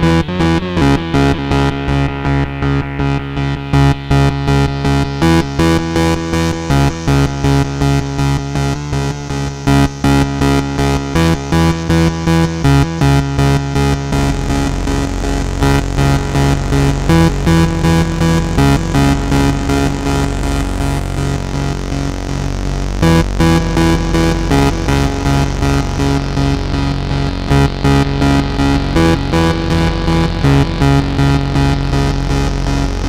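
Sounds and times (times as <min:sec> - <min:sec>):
buzzing synth drone: 0:00.0 - 0:33.0
low synth tone: 0:00.0 - 0:33.0
pulsing synth notes: 0:00.0 - 0:33.0.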